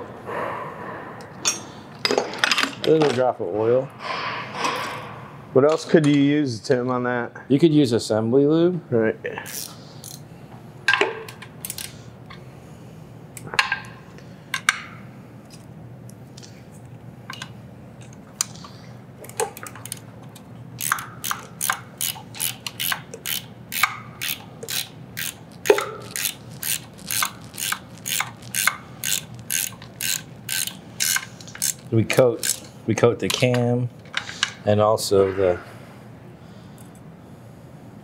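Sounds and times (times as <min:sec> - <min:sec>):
ratchet wrench clicking: 0:09.5 - 0:10.2, 0:20.8 - 0:32.7.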